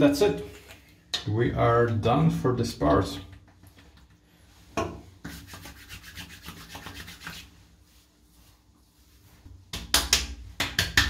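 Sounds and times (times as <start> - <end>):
hands rubbing skin: 5.2 - 9.5.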